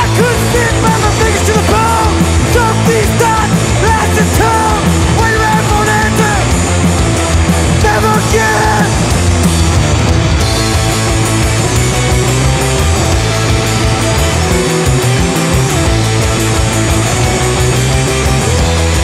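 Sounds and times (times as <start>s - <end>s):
man singing lead vocals: 0.0s - 6.7s, 7.7s - 9.2s
electric guitars: 0.0s - 19.0s
punk rock band playing live: 0.0s - 19.0s.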